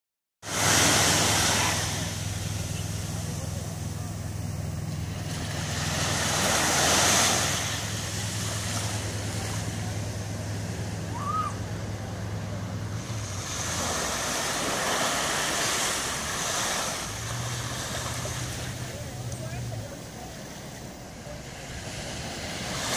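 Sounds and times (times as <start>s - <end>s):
small waves breaking on beach: 0.4s - 3.7s, 5.2s - 10.0s, 12.9s - 22.9s
low motor hum: 0.5s - 22.9s.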